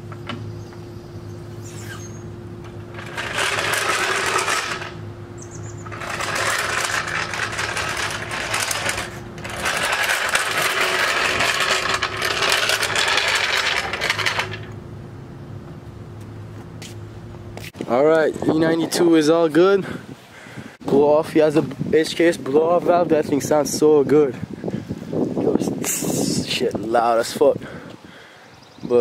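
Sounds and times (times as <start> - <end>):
floor jack wheels rattling: 2.6 - 14.8.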